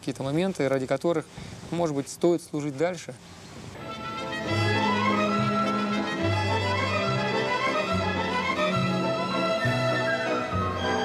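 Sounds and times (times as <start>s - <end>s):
violins playing melody: 3.8s - 11.0s.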